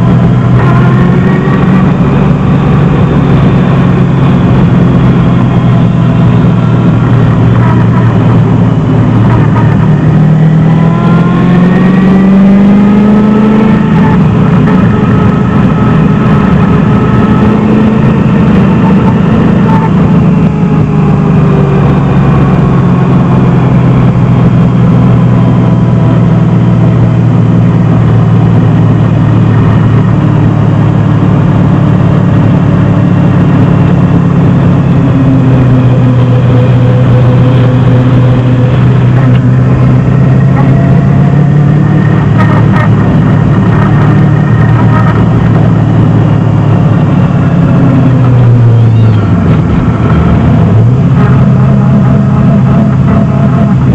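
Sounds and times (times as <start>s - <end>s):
car engine running: 0.0s - 53.9s.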